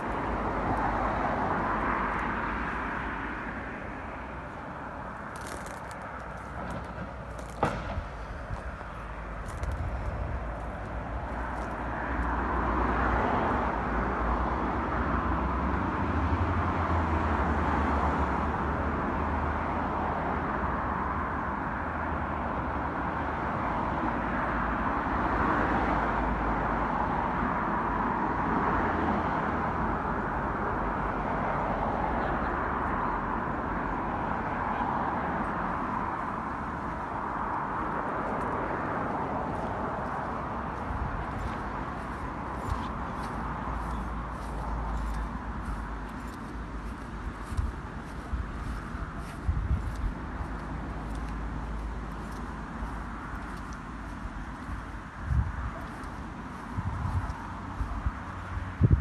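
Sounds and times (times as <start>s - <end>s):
outdoor background noise: 0.0s - 59.0s
sharp knock: 7.5s - 8.2s.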